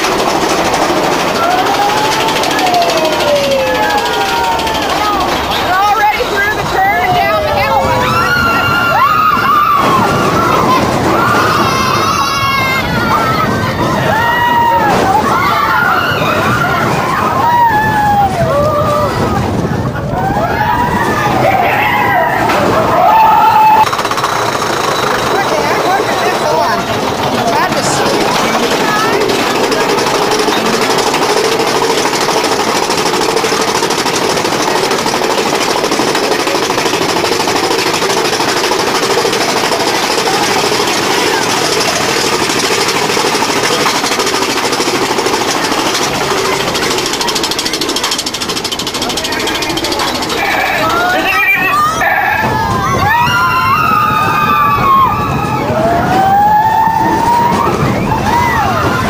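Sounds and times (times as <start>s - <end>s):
roller coaster car clattering on track: 0.0s - 59.0s
riders screaming: 1.2s - 6.2s, 6.8s - 19.4s, 20.1s - 24.0s, 49.7s - 59.0s.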